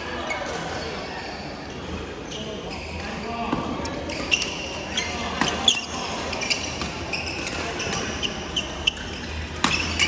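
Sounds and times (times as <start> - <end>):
rackets hitting shuttlecock: 3.5 - 10.0
shoes squeaking on wooden floor: 4.0 - 10.0.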